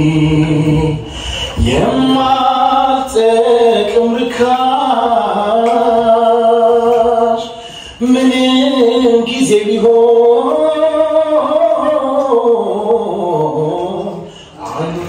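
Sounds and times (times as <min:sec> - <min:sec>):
man singing into a microphone: 0:00.0 - 0:15.0.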